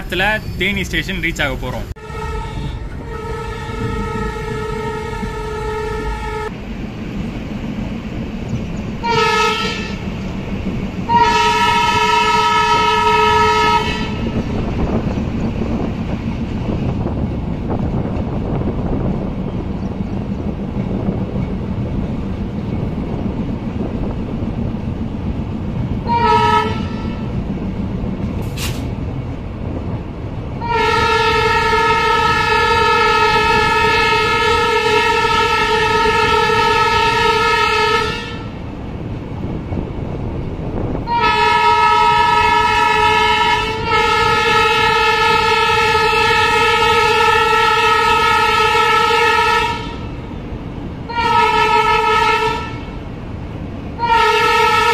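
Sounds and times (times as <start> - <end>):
train rumbling: 0.0 - 54.9
train horn blasts: 2.0 - 6.6, 9.0 - 10.0, 11.1 - 14.4, 26.0 - 27.4, 30.6 - 38.6, 41.0 - 50.2, 51.1 - 53.0, 54.0 - 54.9.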